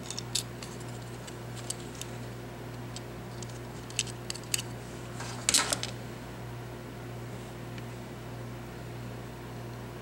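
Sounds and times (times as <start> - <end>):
steady low hum: 0.0 - 10.0
plastic parts clattering: 3.3 - 6.0.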